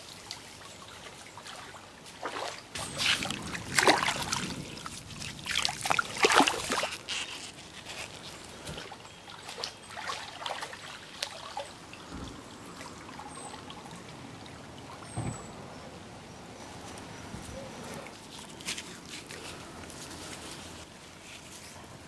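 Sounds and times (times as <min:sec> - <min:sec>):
person wading through water: 0:00.0 - 0:15.8
water trickles and small splashes: 0:00.0 - 0:22.0.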